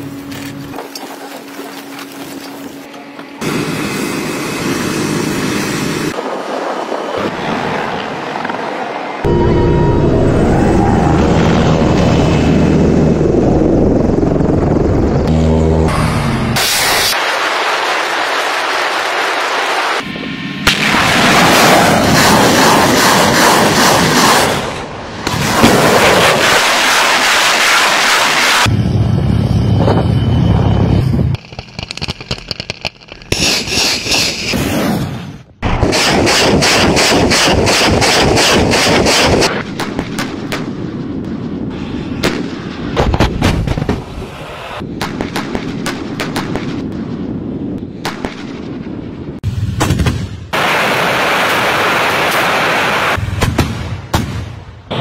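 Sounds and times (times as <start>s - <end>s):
rocket launchers firing: 20.6s - 28.7s, 31.3s - 41.5s, 44.8s - 47.4s, 49.6s - 55.0s
rapid gunfire: 21.0s - 24.6s, 35.7s - 40.0s
single gunshots and blasts: 35.6s - 40.9s, 49.6s - 55.0s.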